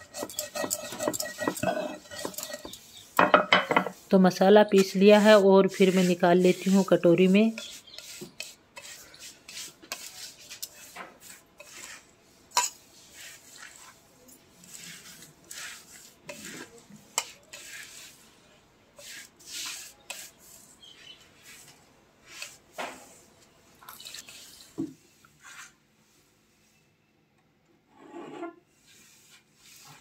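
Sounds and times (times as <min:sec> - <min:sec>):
spice scraped off stone slab: 0:00.0 - 0:03.0, 0:07.5 - 0:14.0, 0:19.0 - 0:20.7.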